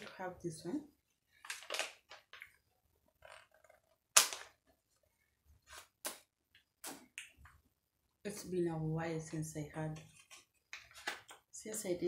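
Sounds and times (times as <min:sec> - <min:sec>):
plastic packet crinkling: 0:01.4 - 0:02.6.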